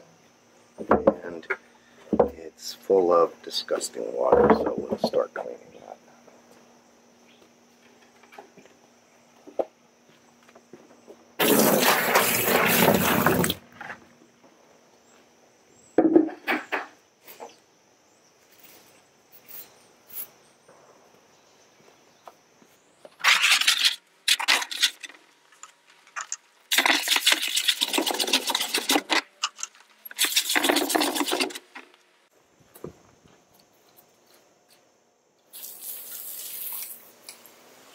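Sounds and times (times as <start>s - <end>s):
water splashing and gushing: 11.4s - 13.6s, 26.7s - 29.3s, 30.0s - 31.9s.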